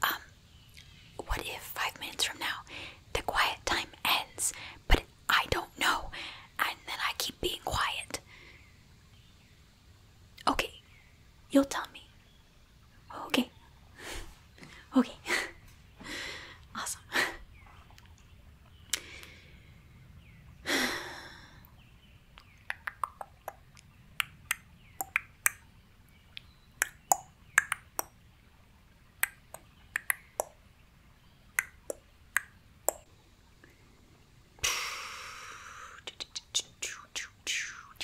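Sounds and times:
person breathing out: 0:20.7 - 0:21.6
small sharp clicks: 0:26.3 - 0:28.1, 0:29.2 - 0:30.6.

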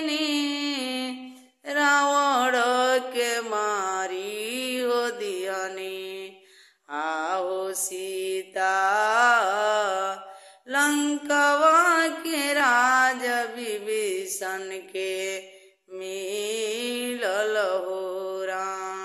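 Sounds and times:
woman singing unaccompanied: 0:00.0 - 0:06.3, 0:06.9 - 0:19.0.

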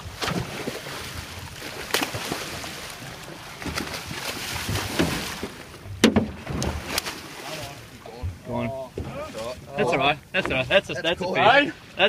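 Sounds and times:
fish thrashing in water: 0:00.0 - 0:05.6
water churning and splashing: 0:00.0 - 0:12.0.

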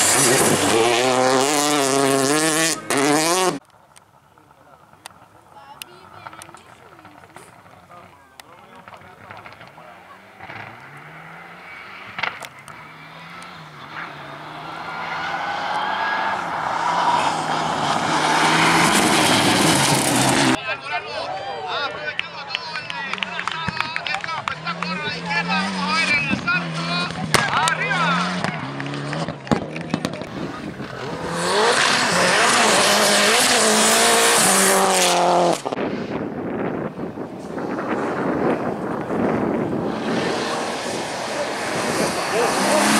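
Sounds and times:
rally car engine approaching: 0:00.0 - 0:20.6, 0:22.7 - 0:42.9
sharp crack: 0:12.0 - 0:12.8.

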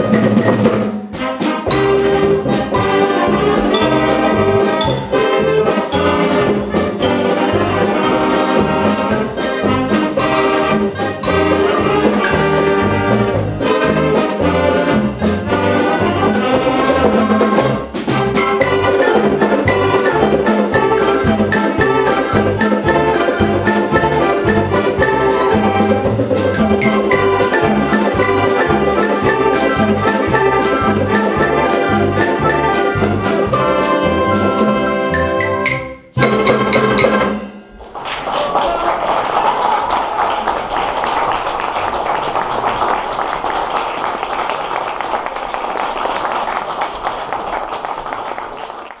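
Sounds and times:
steady drum beat: 0:00.0 - 0:37.6
wind band playing: 0:00.0 - 0:37.6
audience applause: 0:37.8 - 0:49.0.

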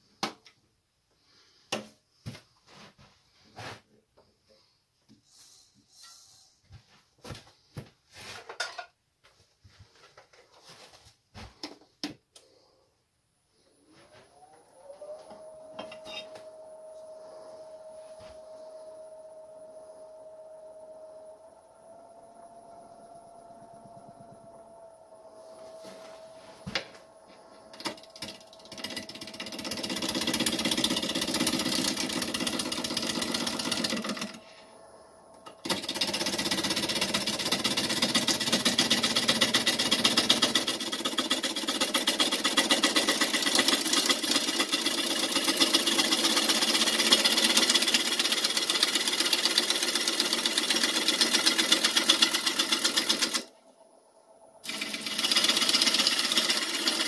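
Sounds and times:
wood lathe tool rattling cut: 0:27.7 - 0:34.4, 0:35.4 - 0:53.5, 0:54.6 - 0:57.0.

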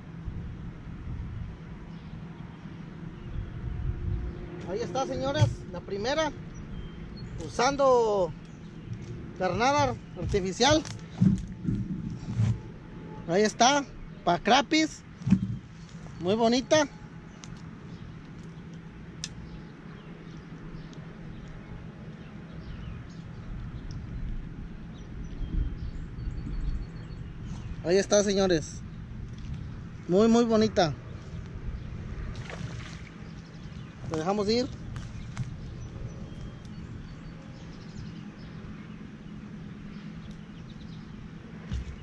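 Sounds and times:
low rumble: 0:00.0 - 0:13.2
steady low rumble: 0:00.0 - 0:42.0
low thumps: 0:08.8 - 0:12.8, 0:15.1 - 0:15.7.

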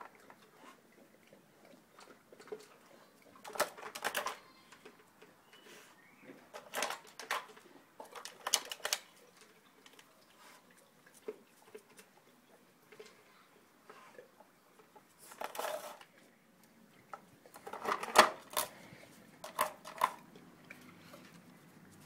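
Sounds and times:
kibble and plastic clattering: 0:01.9 - 0:05.6, 0:06.3 - 0:10.1, 0:14.7 - 0:16.3, 0:17.1 - 0:18.8, 0:19.4 - 0:21.5.

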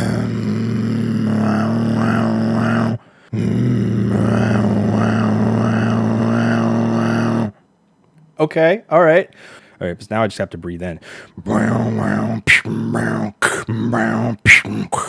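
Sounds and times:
low buzzing throat drone: 0:00.0 - 0:07.6, 0:11.4 - 0:15.0
person breathing in: 0:03.0 - 0:03.5, 0:09.4 - 0:09.8, 0:11.0 - 0:11.4.

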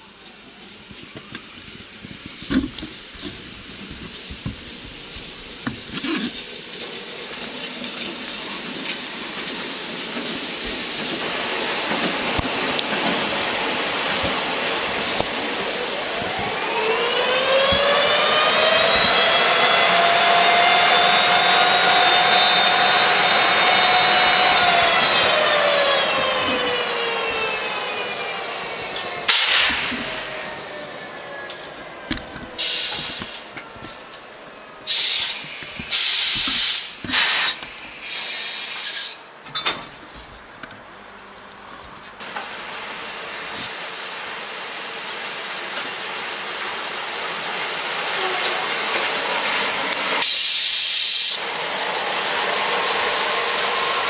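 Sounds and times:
diesel locomotive engine: 0:00.0 - 0:54.0
high rising whine: 0:11.9 - 0:38.0
compressed air hissing: 0:27.4 - 0:31.1, 0:32.6 - 0:33.5, 0:34.8 - 0:39.2, 0:50.2 - 0:51.5.

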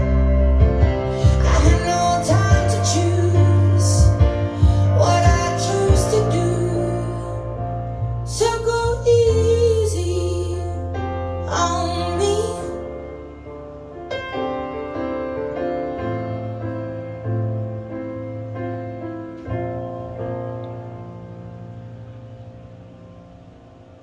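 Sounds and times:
low sustained bass: 0:00.0 - 0:12.6
piano: 0:00.0 - 0:24.0
woman singing: 0:01.2 - 0:07.5, 0:08.3 - 0:12.9.

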